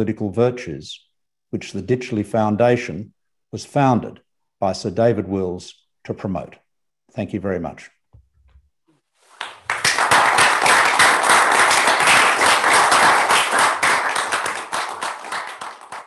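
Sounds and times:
audience applauding: 0:09.3 - 0:16.0.

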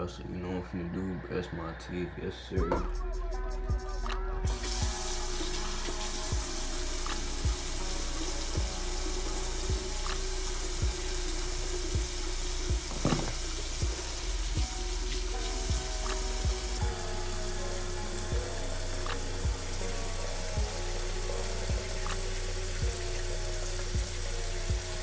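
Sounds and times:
tap running into sink: 0:12.8 - 0:13.6.

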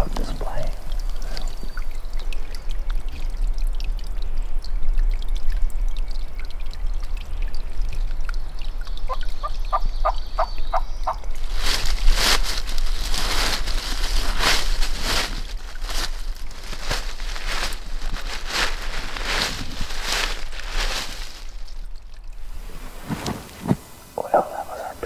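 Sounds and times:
rough scratchy noise: 0:22.5 - 0:25.0.

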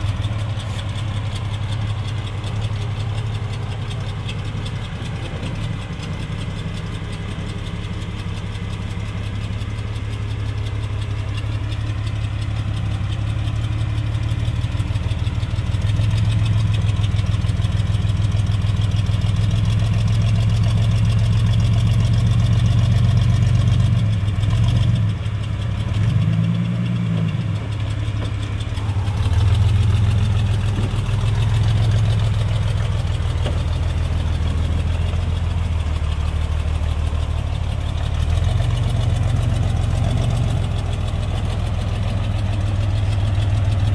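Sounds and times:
car engine running low: 0:00.0 - 0:43.9
engine revving: 0:28.7 - 0:43.9.

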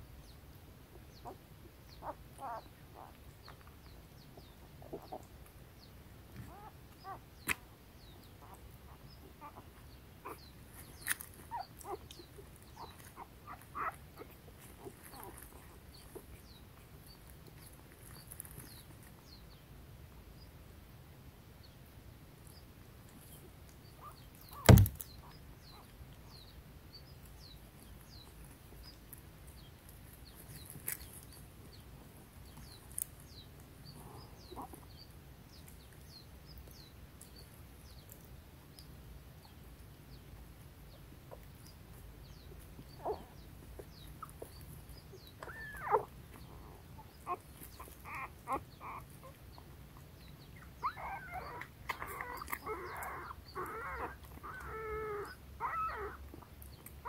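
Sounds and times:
puppies squeaking and whimpering: 0:02.0 - 0:03.2, 0:06.5 - 0:07.6, 0:08.4 - 0:16.6, 0:24.0 - 0:25.9, 0:43.0 - 0:49.7, 0:50.6 - 0:56.9
puppies whining: 0:02.0 - 0:03.2, 0:06.4 - 0:07.6, 0:08.4 - 0:18.7, 0:43.0 - 0:49.7, 0:50.6 - 0:56.9
sharp knock: 0:24.7 - 0:25.0.

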